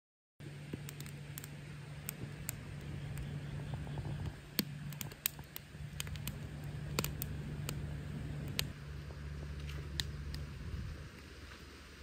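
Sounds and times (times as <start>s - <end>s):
firewood crackling and popping: 0.4s - 12.0s
steady low hum: 0.4s - 12.0s.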